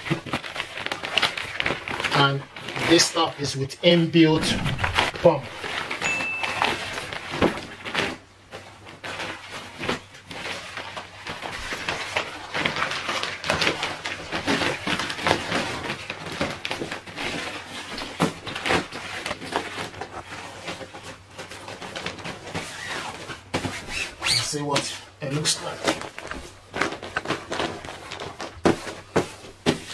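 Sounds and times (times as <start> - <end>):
nylon mat rustling and crinkling: 0.0 - 29.9.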